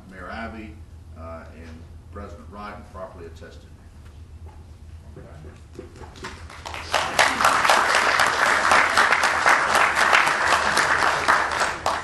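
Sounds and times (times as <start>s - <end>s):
people applauding: 5.8s - 12.0s.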